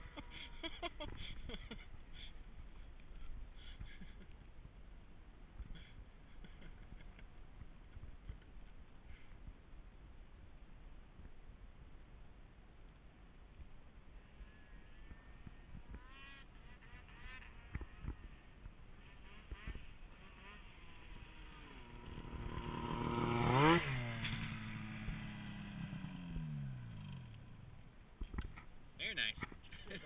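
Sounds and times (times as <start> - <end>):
snowmobile engine passing at speed: 0.0 - 2.3, 14.2 - 27.8.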